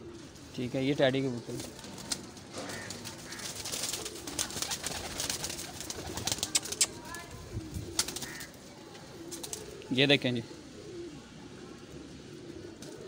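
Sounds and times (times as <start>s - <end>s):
pigeons cooing: 0.0s - 13.0s
wings and feet rustling: 1.4s - 9.9s.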